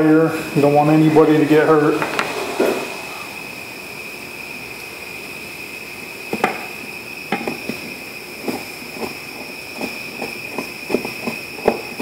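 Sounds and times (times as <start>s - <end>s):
high-pitched whine: 1.1s - 6.2s.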